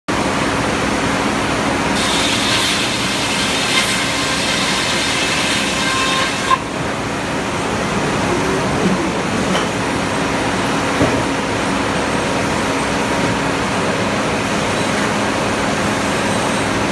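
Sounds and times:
saw cutting log: 0:02.0 - 0:06.7
circular saw blade spinning: 0:02.1 - 0:06.6.

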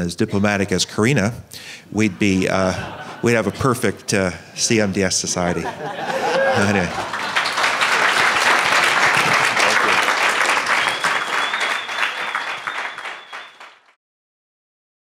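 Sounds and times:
audience applauding: 0:06.0 - 0:14.0.

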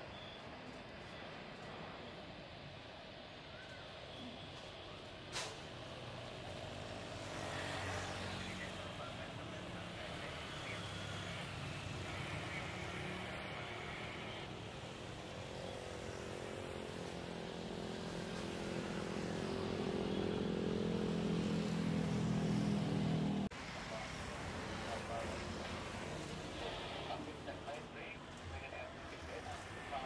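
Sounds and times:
jet engines running: 0:22.1 - 0:30.0.

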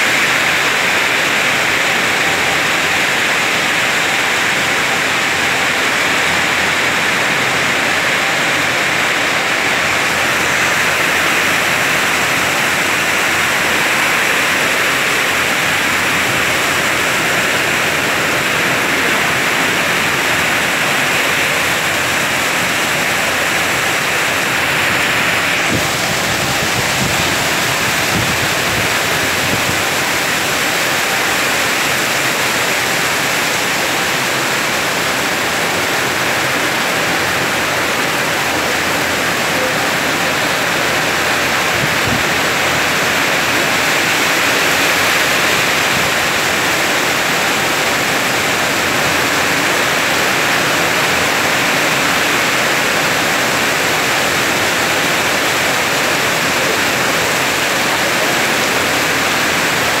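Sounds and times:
heavy rain pouring: 0:00.0 - 1:00.0.

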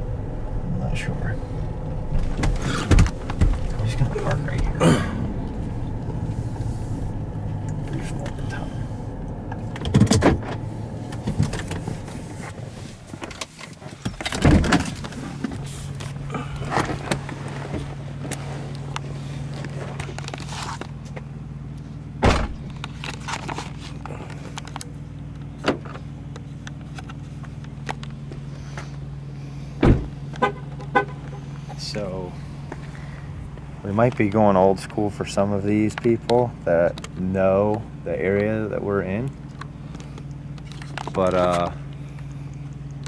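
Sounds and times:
car engine humming: 0:00.0 - 0:43.0
clicks and knocks inside car: 0:02.1 - 0:04.8.

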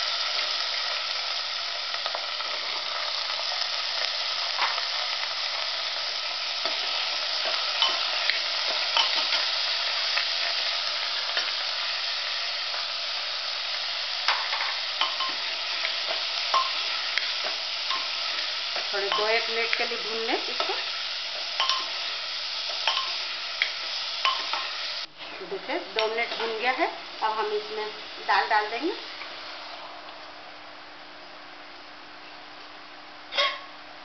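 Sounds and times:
vegetables sizzling in a pot: 0:00.0 - 0:34.0.

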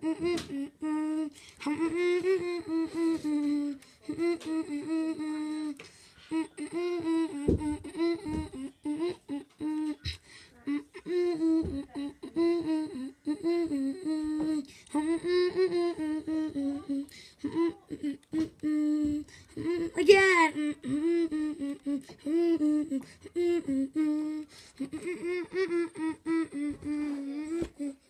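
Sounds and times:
person humming: 0:00.0 - 0:28.0
dull thumps: 0:07.2 - 0:08.6.

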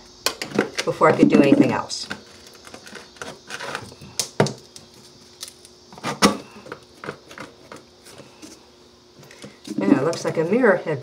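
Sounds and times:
floor tile scraping and crackling: 0:00.5 - 0:04.0.

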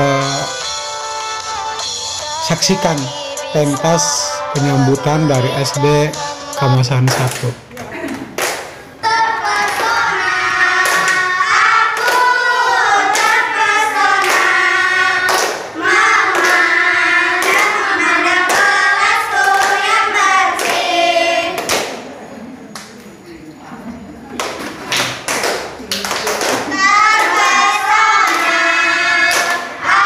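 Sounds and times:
children singing in unison: 0:09.0 - 0:21.9, 0:26.6 - 0:30.0
sharp hand claps: 0:15.3 - 0:15.7, 0:21.6 - 0:22.0, 0:24.4 - 0:27.4.

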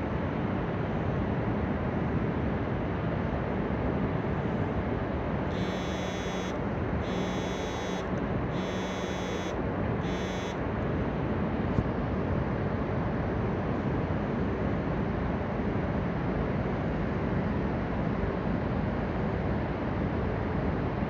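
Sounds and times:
electronic buzzer: 0:05.5 - 0:10.6.

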